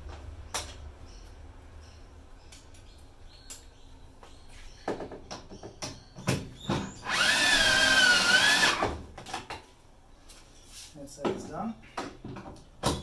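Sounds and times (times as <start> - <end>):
power drill motor whining: 7.0 - 8.9.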